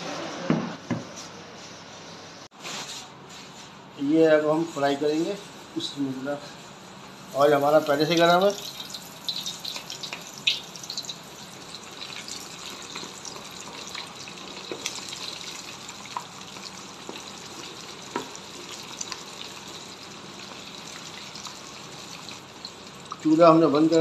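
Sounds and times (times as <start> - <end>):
deep-frying sizzle with pops: 7.6 - 24.0.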